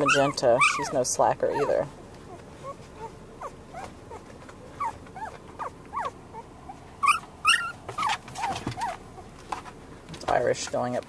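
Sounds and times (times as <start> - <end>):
puppy squealing: 0.0 - 9.1
puppies squeaking: 0.0 - 9.3.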